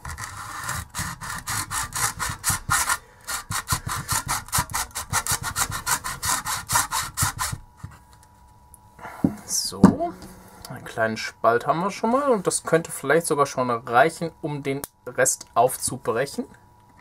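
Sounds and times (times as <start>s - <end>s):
hacksaw cutting plastic: 0.0s - 7.6s.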